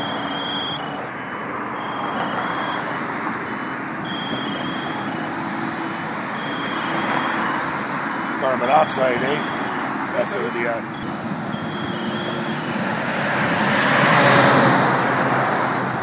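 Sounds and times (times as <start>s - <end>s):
short high-pitched beeps: 0.0s - 1.0s, 1.6s - 12.6s
highway traffic passing: 0.0s - 16.0s.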